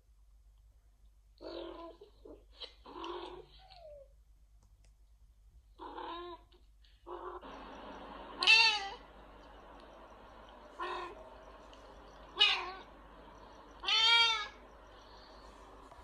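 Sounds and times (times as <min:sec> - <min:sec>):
cat meowing: 0:08.4 - 0:09.0, 0:12.4 - 0:12.9, 0:13.8 - 0:14.6.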